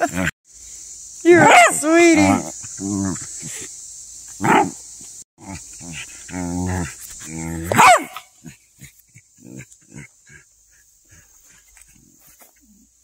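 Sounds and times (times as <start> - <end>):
dog barking low: 1.4 - 2.4, 7.6 - 10.0.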